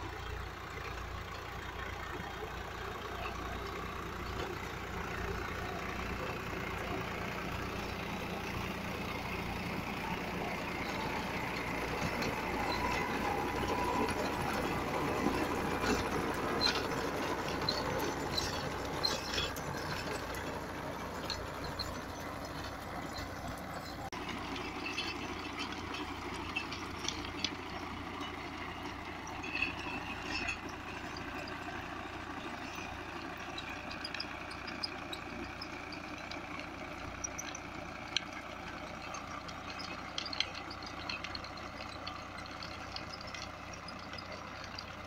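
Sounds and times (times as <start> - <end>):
diesel tractor engine running: 0.0 - 45.0
rotavator churning soil: 3.0 - 45.0.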